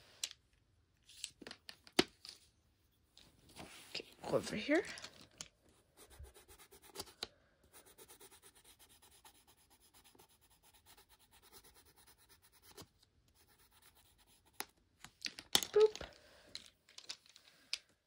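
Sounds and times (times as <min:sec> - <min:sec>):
pencil scratching on paper: 0:06.0 - 0:14.7.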